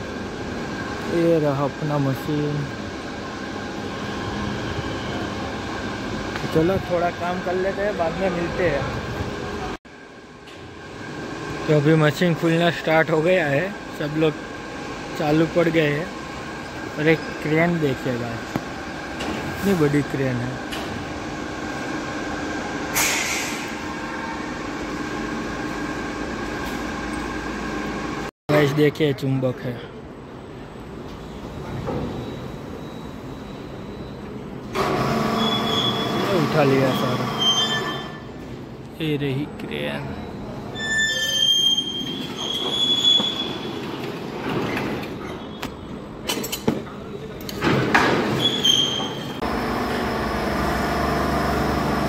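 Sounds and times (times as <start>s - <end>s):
factory machinery drone: 0.0s - 29.0s, 29.9s - 52.0s
crane wheels squealing on rails: 1.2s - 8.8s, 31.1s - 38.5s, 40.0s - 45.9s, 48.4s - 49.5s
brief hiss: 22.9s - 23.8s.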